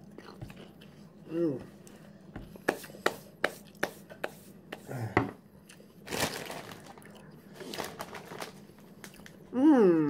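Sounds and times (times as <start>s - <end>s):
potato chips being chewed: 5.6s - 9.4s.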